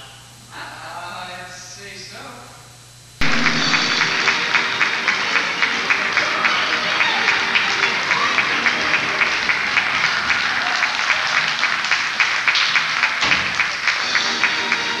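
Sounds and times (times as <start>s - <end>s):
audience applauding: 3.2s - 15.0s
music playing: 3.2s - 15.0s.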